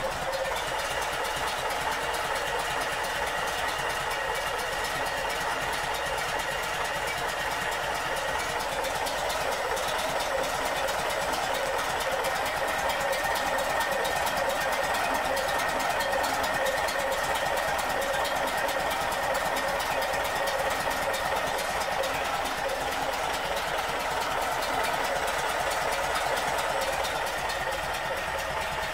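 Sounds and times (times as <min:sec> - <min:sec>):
car engine running: 0:00.0 - 0:28.9.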